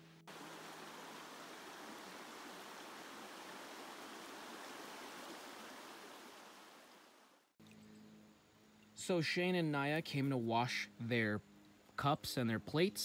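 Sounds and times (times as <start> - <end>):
creek water rushing: 0.0 - 7.5.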